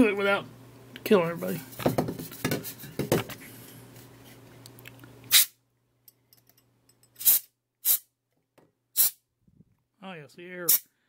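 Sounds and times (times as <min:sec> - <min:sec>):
compressed air hissing: 0:05.3 - 0:05.5, 0:07.2 - 0:08.1, 0:09.0 - 0:09.2.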